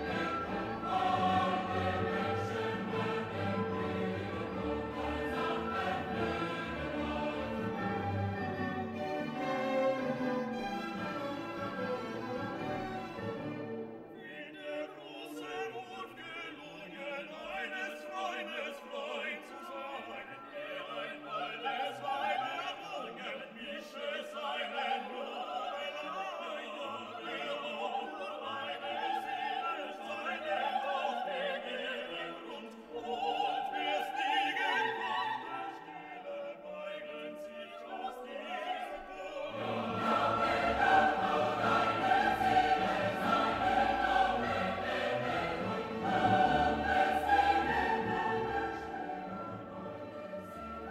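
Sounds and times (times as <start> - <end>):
operatic singing with orchestra: 0.0 - 50.9.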